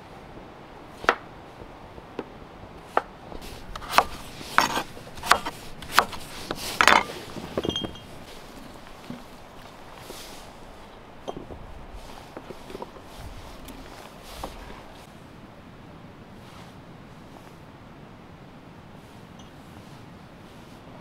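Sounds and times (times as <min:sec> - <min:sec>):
knife chopping on wooden board: 0:03.7 - 0:07.1.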